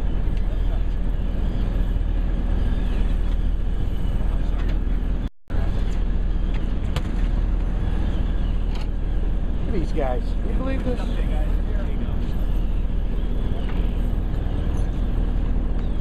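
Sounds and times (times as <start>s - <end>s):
boat engine idling: 0.0s - 16.0s.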